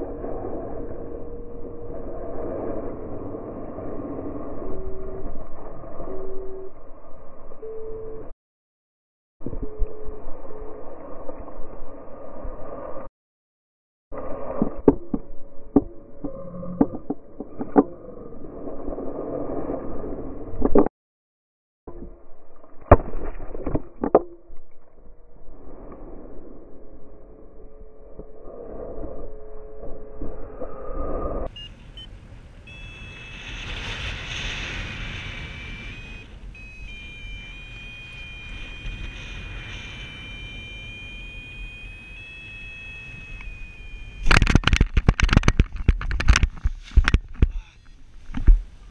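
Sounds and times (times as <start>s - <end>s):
wind rushing over microphone: 0.0s - 7.4s
high electronic tone: 32.7s - 34.4s, 35.2s - 45.4s
wind rushing over helmet camera: 32.7s - 48.9s.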